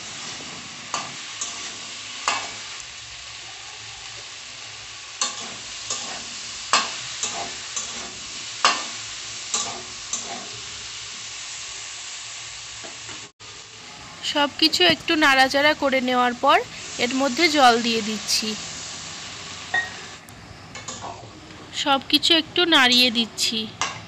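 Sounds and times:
vegetables sizzling in hot oil: 0.0 - 24.0
metal spatula scraping a pan: 5.2 - 8.8, 9.5 - 10.7.

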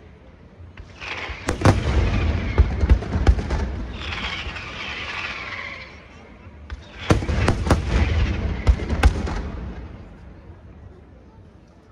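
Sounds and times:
firework stars hissing: 0.8 - 2.9, 3.8 - 6.3
deep firework thuds: 0.8 - 5.4, 6.6 - 10.2
firework shells bursting: 0.8 - 6.0.

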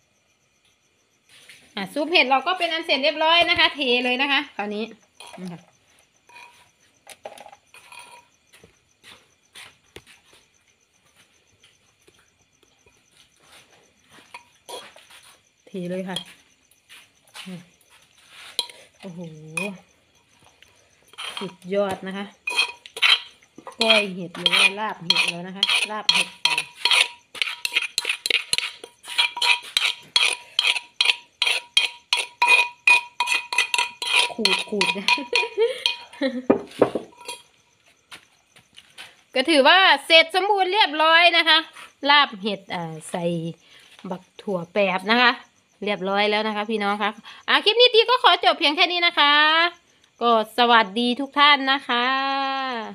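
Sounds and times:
spoon scraping and knocking a bowl: 5.2 - 5.6, 6.3 - 8.6, 14.2 - 15.4, 16.2 - 16.4, 18.0 - 19.8, 21.1 - 37.6.

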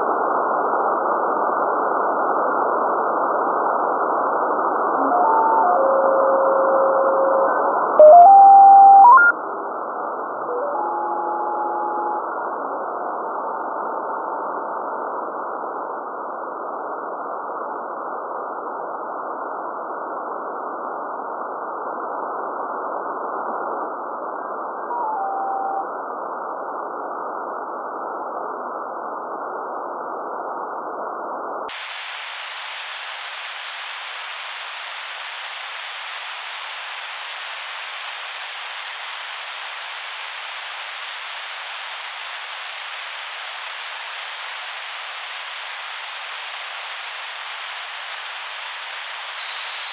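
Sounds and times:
radio static hiss: 31.7 - 49.9.

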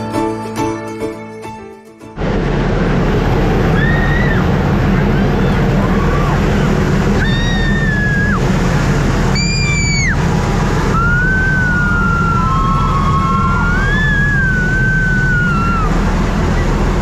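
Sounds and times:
vehicle engine rumble: 2.2 - 17.0.

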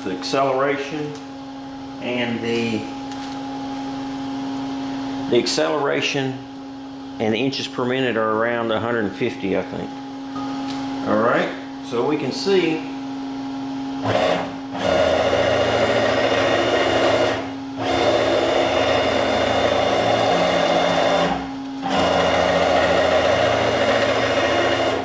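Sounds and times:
steady hum: 0.0 - 25.0
stepper motor buzzing whine: 8.9 - 25.0.

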